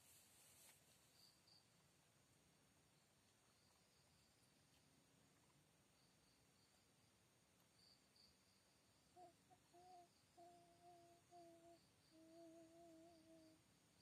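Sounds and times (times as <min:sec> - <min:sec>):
crickets chirping: 0:00.1 - 0:14.0
person humming a tune: 0:09.2 - 0:13.6.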